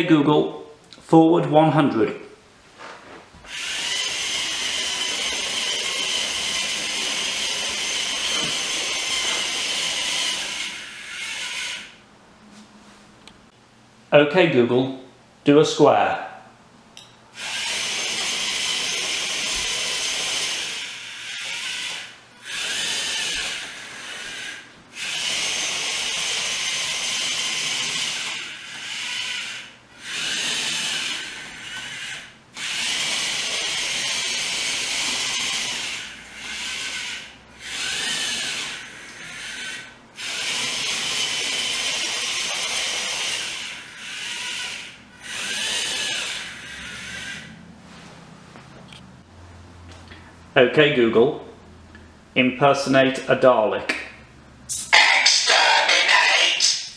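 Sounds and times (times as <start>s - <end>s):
robot motors whining: 3.5s - 12.0s, 17.4s - 47.6s.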